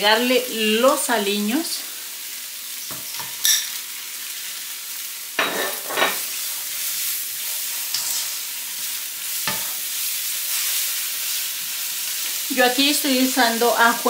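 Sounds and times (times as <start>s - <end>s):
onions sizzling in oil: 0.0s - 14.0s
spatula knocking and scraping pan: 9.4s - 9.8s.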